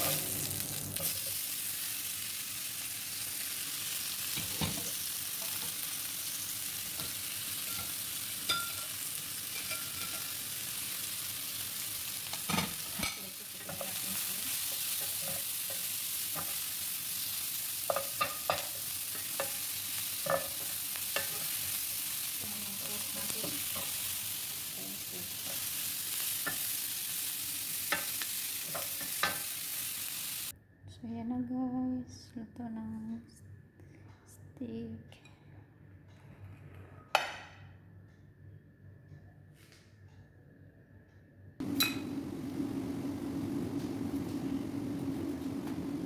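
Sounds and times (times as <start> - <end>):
food sizzling in a grill pan: 0.0 - 30.5.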